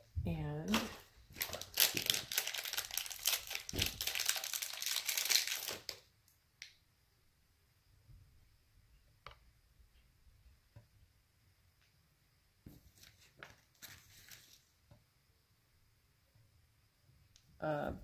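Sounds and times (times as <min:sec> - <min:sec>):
plastic wrapping crinkling and tearing: 0:00.7 - 0:06.0, 0:12.9 - 0:14.7.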